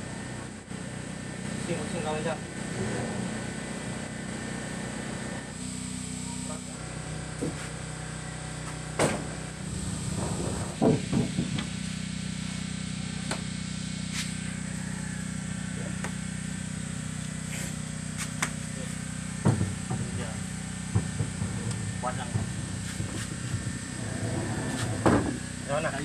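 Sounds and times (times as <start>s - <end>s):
steady low hum: 0.0s - 26.0s
wooden planks knocking and thudding: 10.0s - 11.7s, 19.4s - 20.2s, 20.9s - 25.4s.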